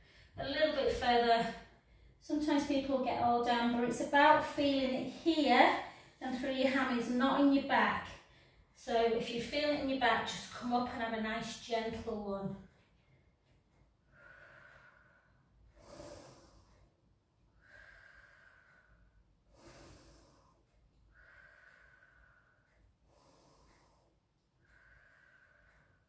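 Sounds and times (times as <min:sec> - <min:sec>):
woman breathing slowly: 0:00.0 - 0:00.4, 0:01.5 - 0:02.2, 0:05.1 - 0:06.2, 0:08.1 - 0:08.8, 0:12.7 - 0:26.0.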